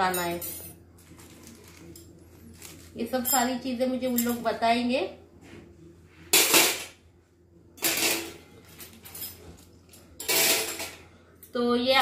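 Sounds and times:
metal trays clattering: 10.2s - 11.0s.

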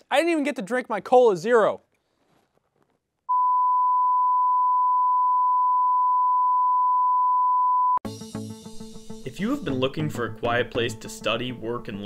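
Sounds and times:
steady test tone beep: 3.3s - 8.0s.

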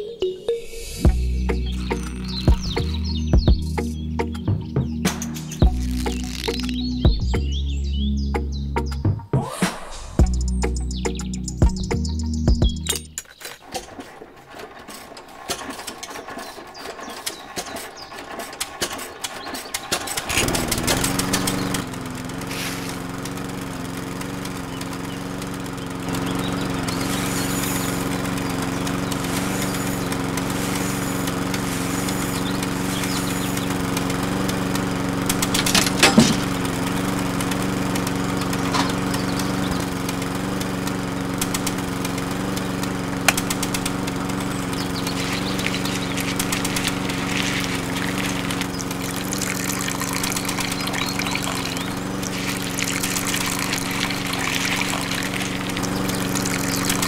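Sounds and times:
toy engine running: 0.7s - 3.9s, 5.1s - 7.3s, 12.4s - 57.0s
sharp clack: 5.0s - 6.8s
irregular clicking: 28.4s - 57.0s.

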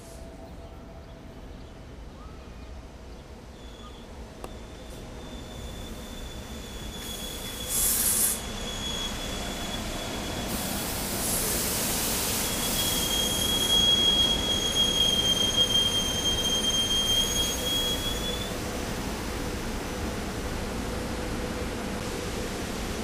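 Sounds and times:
train wheel squeal: 3.5s - 18.6s
burst of hiss: 7.0s - 8.6s, 10.5s - 13.7s.

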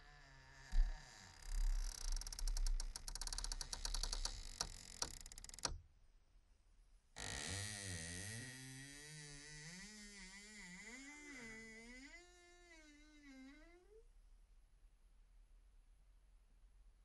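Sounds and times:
crackling clicks: 1.7s - 5.8s.

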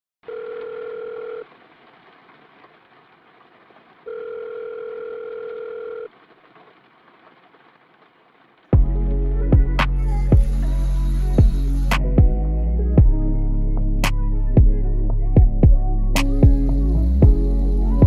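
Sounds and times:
telephone ringback tone: 0.2s - 1.4s, 4.1s - 6.1s.

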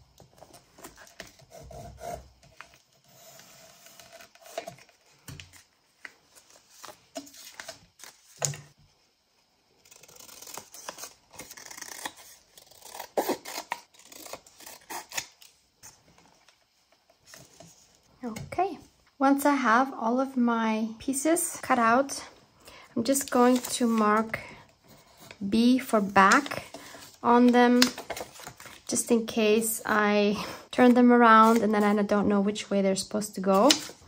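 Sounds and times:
paper rustling: 23.1s - 24.3s.

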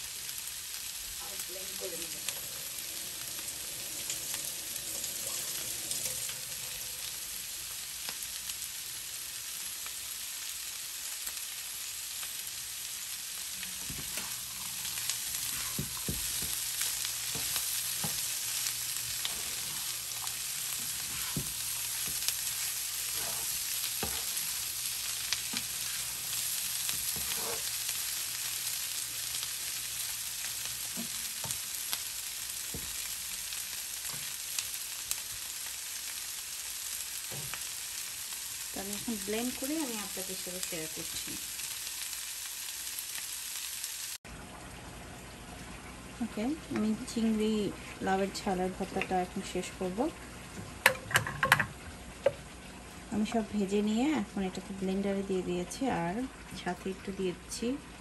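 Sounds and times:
food sizzling in frying pan: 0.0s - 58.0s
spatula scraping pan: 13.8s - 24.7s, 25.3s - 27.9s.

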